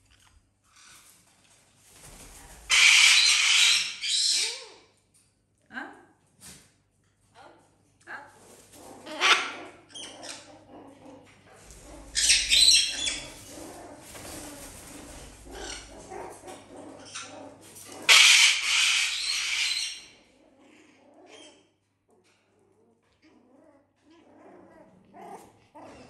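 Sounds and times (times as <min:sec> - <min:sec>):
quiet animal noises: 0:00.0 - 0:05.0, 0:07.1 - 0:26.0
cockatoo screeching: 0:02.7 - 0:04.8, 0:12.1 - 0:13.4, 0:18.1 - 0:20.1.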